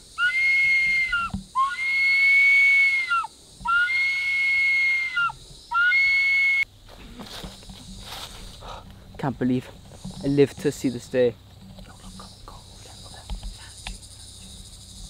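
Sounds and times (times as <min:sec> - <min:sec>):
bamboo flute long high notes: 0:00.1 - 0:06.7.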